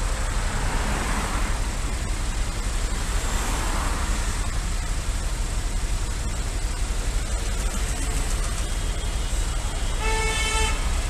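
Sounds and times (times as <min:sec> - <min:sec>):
surrounding traffic noise: 0:00.0 - 0:11.0
motorcycle engine idling: 0:01.6 - 0:03.3, 0:04.4 - 0:11.0.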